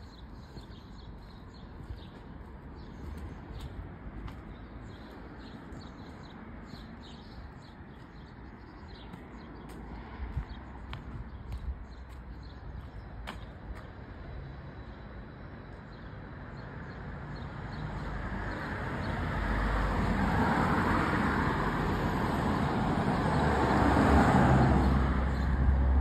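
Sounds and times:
cars driving past: 0:17.2 - 0:26.0.

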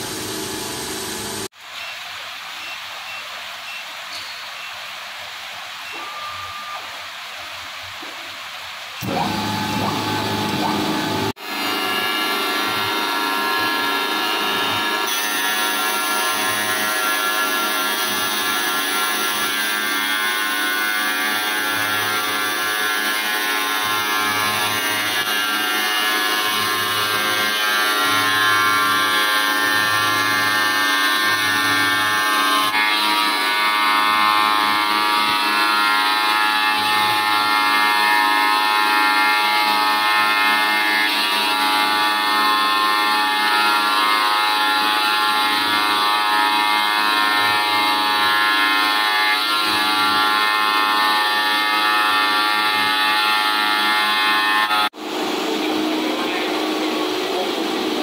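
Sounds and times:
tile cutting machine whining: 0:09.0 - 0:55.0.

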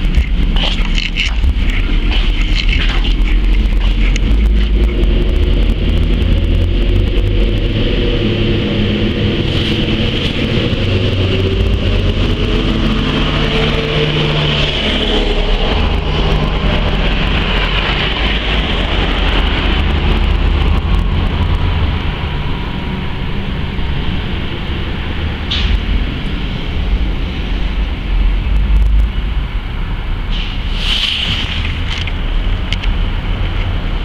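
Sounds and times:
low engine drone: 0:00.0 - 0:34.0
low outdoor street rumble: 0:00.0 - 0:34.0
motor vehicles passing: 0:00.0 - 0:34.0
short hiss: 0:30.3 - 0:31.6.

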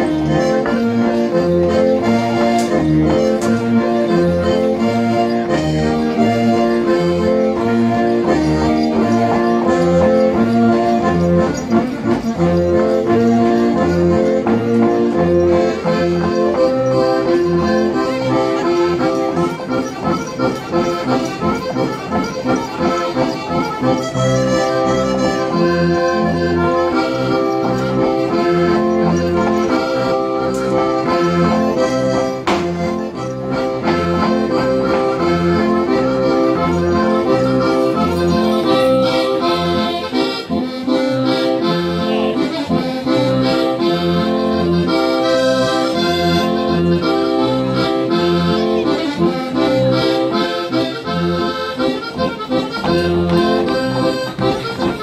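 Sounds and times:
accordion dance tune: 0:00.0 - 0:55.0.

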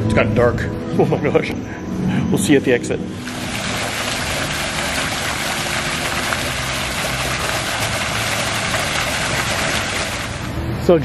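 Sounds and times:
engine running: 0:02.9 - 0:11.0.

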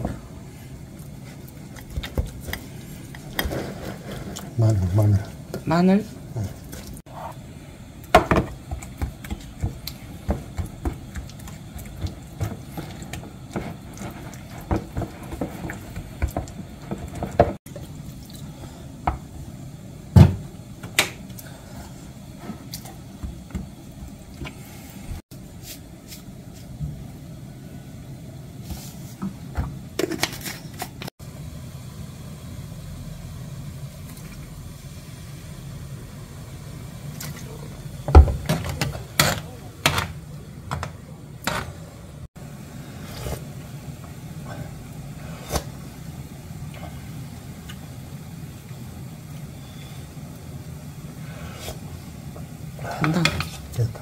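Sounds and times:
wooden spoon stirring thick sauce: 0:08.5 - 0:17.9.

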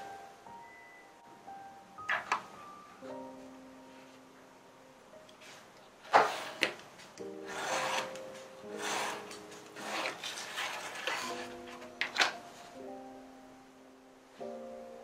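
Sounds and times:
knife cutting cardboard: 0:07.5 - 0:11.6.

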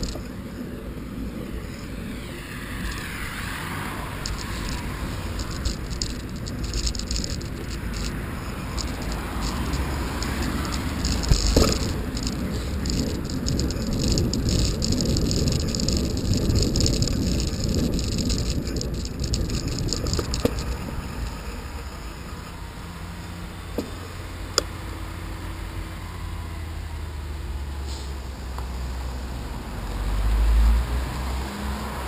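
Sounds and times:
wind and tyre noise: 0:00.0 - 0:32.0
sharp clicks: 0:02.1 - 0:21.4
bike mount rattling: 0:04.1 - 0:22.6.

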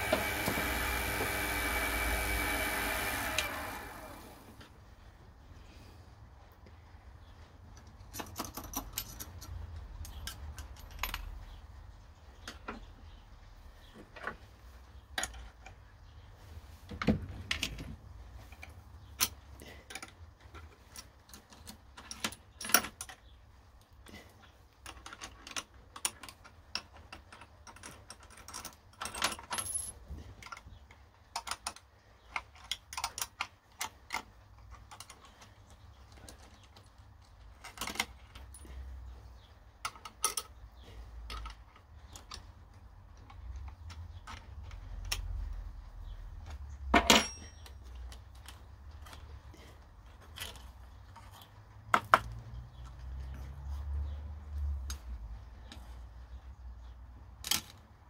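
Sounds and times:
metallic clicks and clinks: 0:07.8 - 0:11.5.

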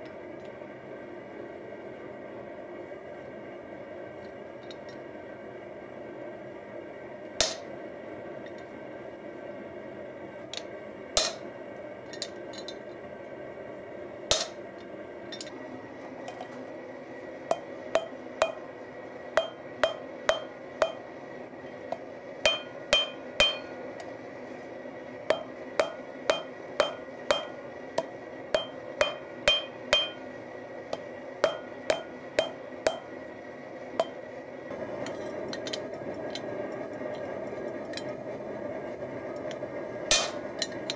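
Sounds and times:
steady background noise: 0:00.0 - 0:40.9
hammer striking hot steel on anvil: 0:07.4 - 0:07.7, 0:11.2 - 0:11.5, 0:14.3 - 0:14.7, 0:17.5 - 0:18.8, 0:19.4 - 0:21.2, 0:21.9 - 0:24.1, 0:25.3 - 0:30.3, 0:30.9 - 0:33.2, 0:34.0 - 0:34.2, 0:40.1 - 0:40.9.

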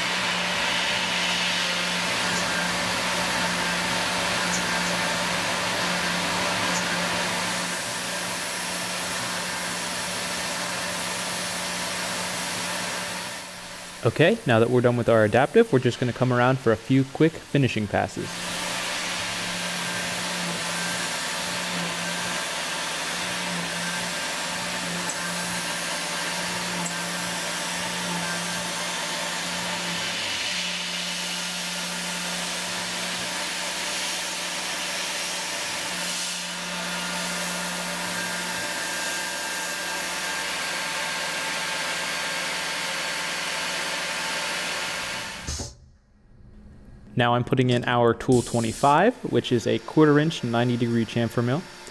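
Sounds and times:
mill spindle running: 0:00.0 - 0:45.8, 0:48.3 - 0:51.9
steady hum: 0:11.4 - 0:31.4, 0:45.4 - 0:51.9
air hiss from coolant nozzle: 0:48.3 - 0:49.1.

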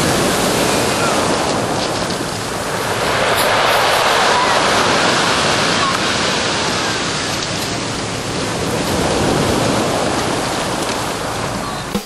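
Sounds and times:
waves washing onto pebble beach: 0:00.0 - 0:11.9.

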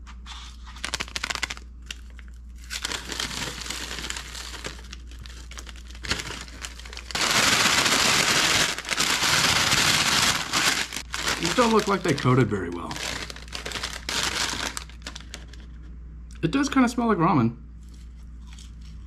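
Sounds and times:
paper bag crinkling: 0:00.3 - 0:15.8
paper bag being shaken: 0:00.6 - 0:01.6, 0:02.8 - 0:15.6.

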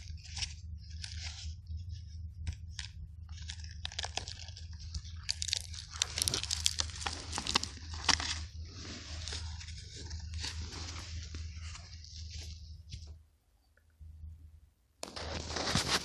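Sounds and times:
hands scraping soil and debris: 0:02.4 - 0:13.1, 0:15.0 - 0:16.0.

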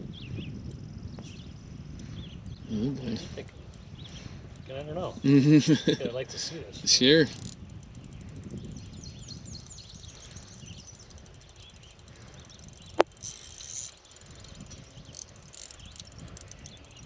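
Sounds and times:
fishing reel clicking: 0:06.8 - 0:17.0.

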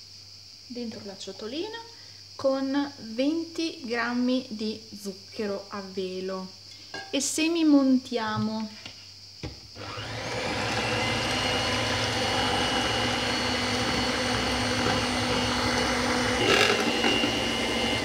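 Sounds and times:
electric hand mixer running: 0:09.8 - 0:18.0
mixer beaters rattling: 0:10.2 - 0:18.0.

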